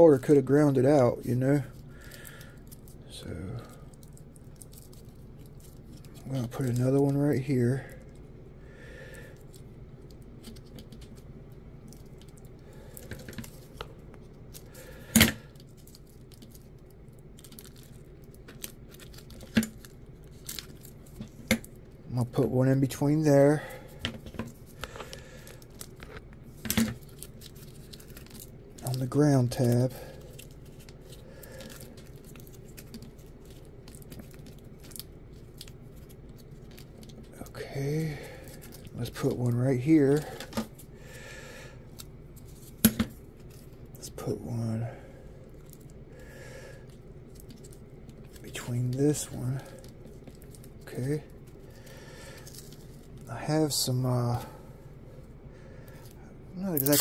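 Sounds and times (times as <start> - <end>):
steady low hum: 0.0 - 57.0
fingers rustling and clicking: 1.4 - 7.2, 9.4 - 22.0, 24.1 - 37.4.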